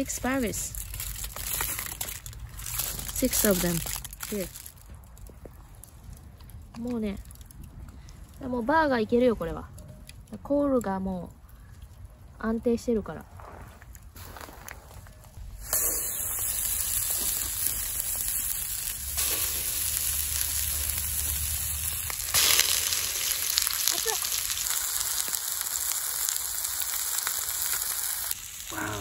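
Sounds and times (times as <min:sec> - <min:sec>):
burger patties sizzling in oil: 0:15.6 - 0:29.0.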